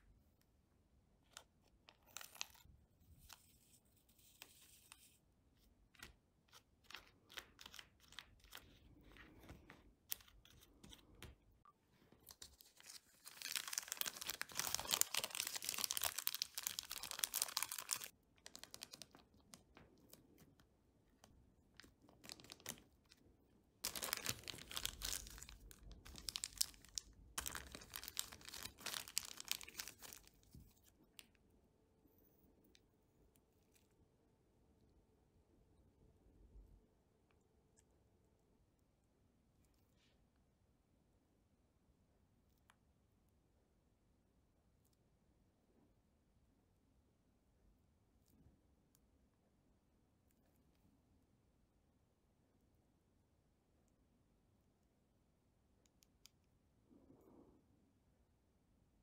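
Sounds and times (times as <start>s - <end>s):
plastic bag crinkling: 12.3s - 19.4s, 22.0s - 23.2s, 23.8s - 30.4s.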